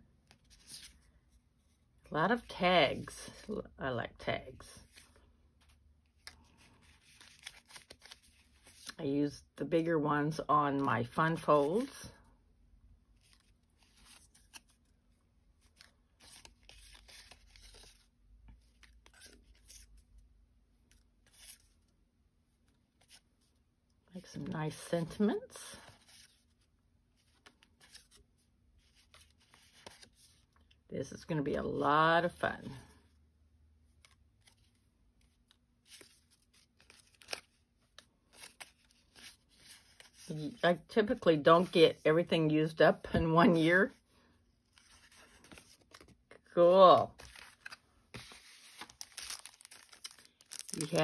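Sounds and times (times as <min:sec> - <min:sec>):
paper tags rustling and clicking: 0:47.2 - 0:51.0.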